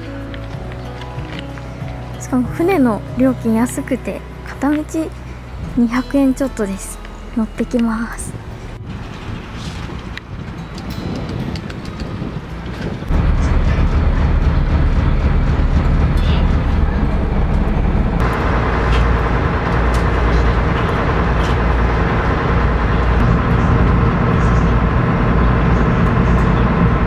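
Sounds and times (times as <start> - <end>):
ferry engine droning: 0.0 - 27.0
high-pitched whine: 13.1 - 27.0.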